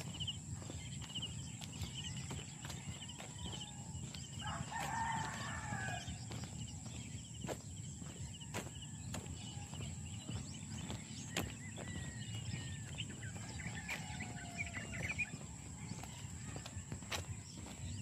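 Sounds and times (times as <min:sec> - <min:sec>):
footsteps: 0:00.0 - 0:18.0
rooster crowing: 0:02.0 - 0:06.5, 0:11.1 - 0:17.8.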